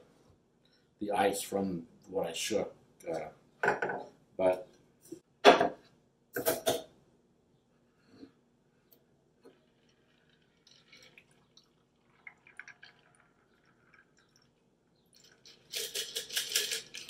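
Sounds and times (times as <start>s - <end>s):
liquid pouring: 9.5s - 17.0s
ice clinking: 15.2s - 17.0s.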